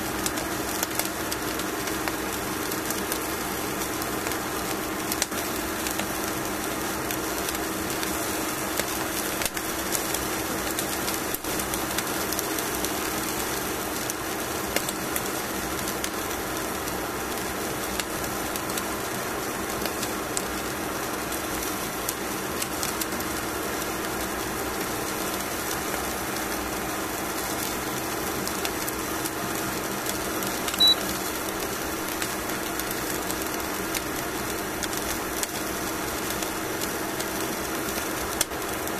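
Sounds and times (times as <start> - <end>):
cooking appliance humming: 0.0 - 38.9
short high beep: 30.8 - 31.0.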